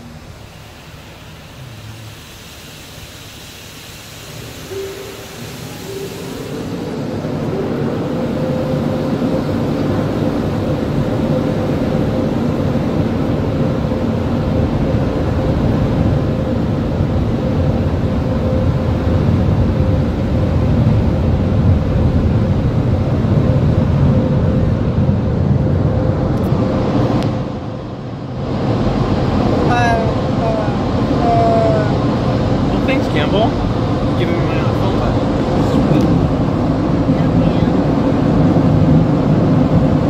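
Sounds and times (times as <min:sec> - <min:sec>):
constant humming tone: 0:00.0 - 0:40.0
dryer blowers rushing air: 0:00.0 - 0:40.0.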